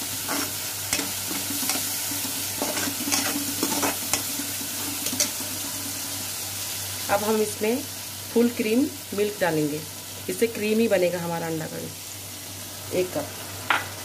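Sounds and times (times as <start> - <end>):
masala sizzling in pan: 0.0 - 14.0
metal spoon scraping pan: 0.2 - 4.3.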